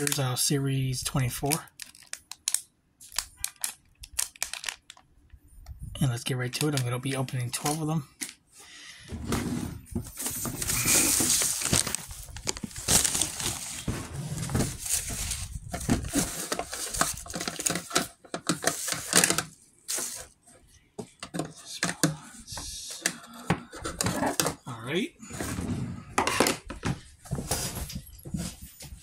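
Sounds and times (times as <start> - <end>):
plastic bags crinkling: 1.5 - 5.3, 10.1 - 20.4.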